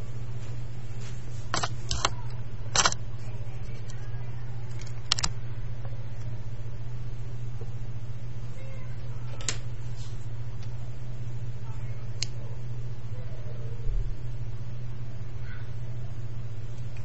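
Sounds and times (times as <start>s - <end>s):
low electrical hum: 0.0s - 17.0s
webcam handling clicks and knocks: 2.8s - 3.0s.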